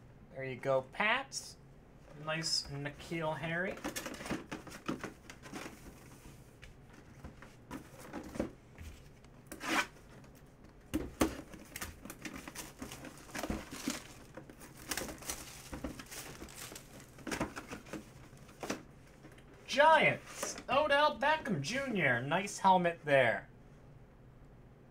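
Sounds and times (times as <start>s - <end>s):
plastic shrink wrap crinkling: 11.3s - 18.6s.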